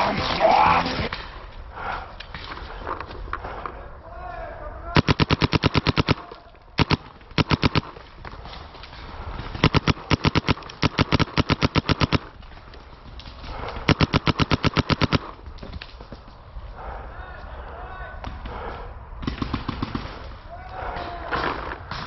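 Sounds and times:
paintball marker firing rapidly: 5.0s - 8.0s, 9.5s - 12.4s, 13.6s - 15.4s.

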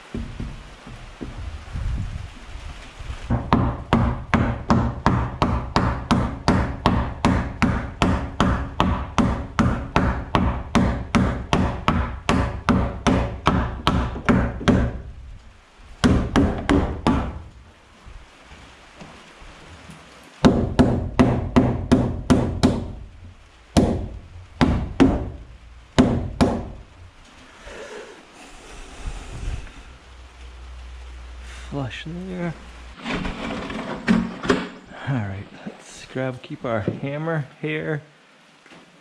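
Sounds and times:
hammer striking wood: 0.0s - 1.5s, 3.3s - 15.1s, 16.0s - 17.4s, 20.4s - 23.0s, 23.8s - 25.4s, 26.0s - 26.8s.

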